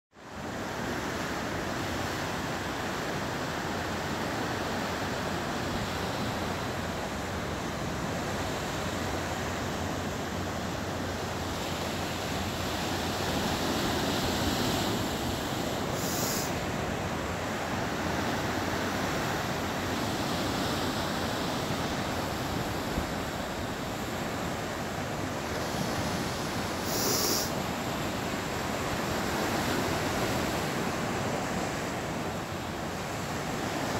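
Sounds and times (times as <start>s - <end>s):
wind: 0.1s - 33.9s
ocean surf: 0.2s - 33.9s
brief high hisses: 15.9s - 16.6s, 26.8s - 27.6s.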